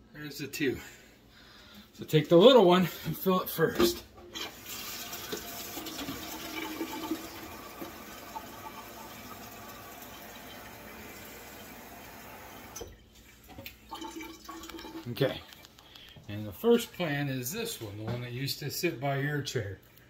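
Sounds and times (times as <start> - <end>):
tap water filling watering can: 4.3 - 15.1.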